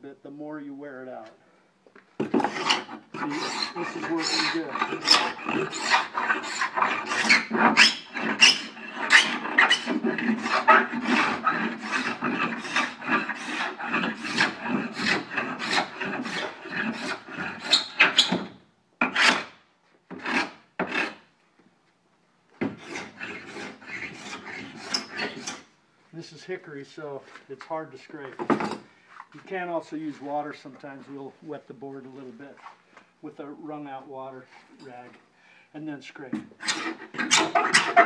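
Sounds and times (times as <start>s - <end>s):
scraper scraping a wooden board: 2.2s - 21.3s, 22.6s - 25.7s, 36.4s - 38.0s.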